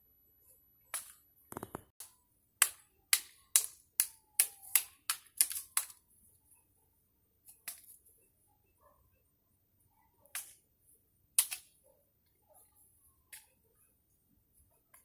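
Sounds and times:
stick whacking a tree trunk: 0:01.0 - 0:06.0.

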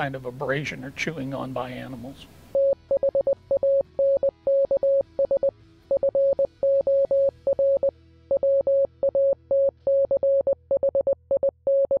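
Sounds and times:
soft low music: 0:00.0 - 0:12.0
morse code beeps: 0:02.6 - 0:12.0.

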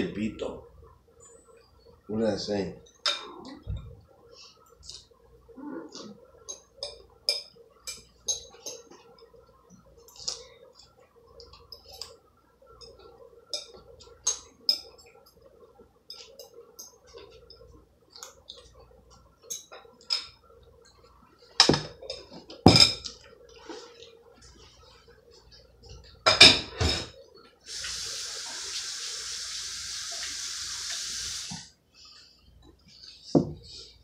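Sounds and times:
dishes and pots clattering: 0:21.6 - 0:23.2, 0:26.2 - 0:27.2
tap water running into sink: 0:27.7 - 0:31.7.

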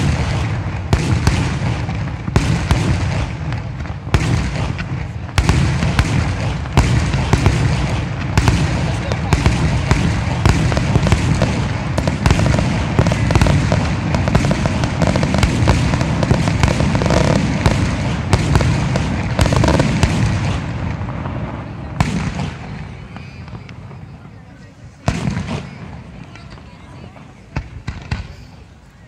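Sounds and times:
fireworks bursting: 0:00.0 - 0:29.0.

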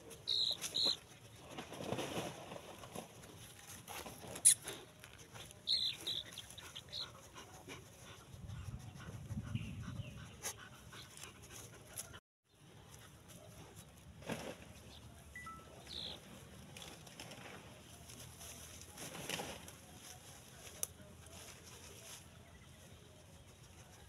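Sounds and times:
dog squeaking: 0:00.3 - 0:01.0.

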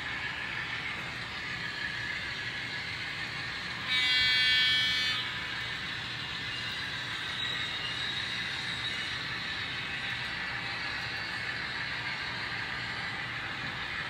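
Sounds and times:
model train running on track: 0:00.0 - 0:14.0
train horn blast: 0:03.8 - 0:05.4.

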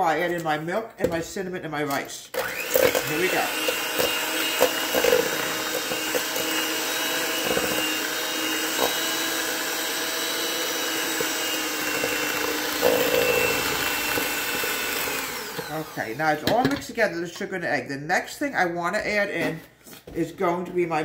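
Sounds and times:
electric hand mixer whisking: 0:02.3 - 0:16.6.

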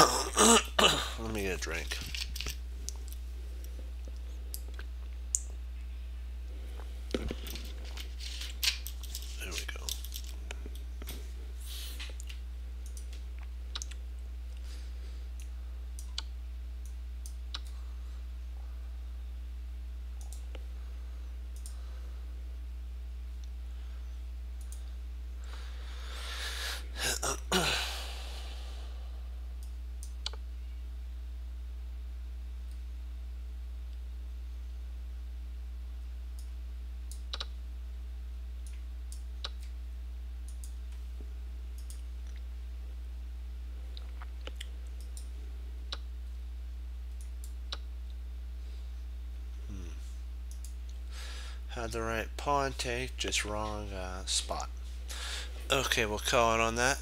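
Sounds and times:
steady low hum: 0:00.0 - 0:57.0
mouse clicks: 0:16.0 - 0:17.7, 0:37.1 - 0:37.5
man sighing heavily: 0:26.1 - 0:29.2.

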